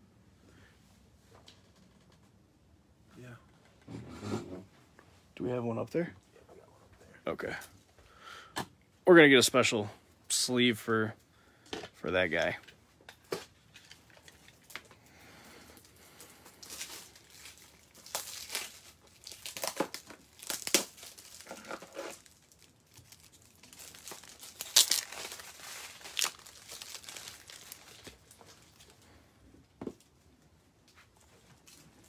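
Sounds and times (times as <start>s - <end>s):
plastic sleeve crinkling: 15.7s - 29.1s.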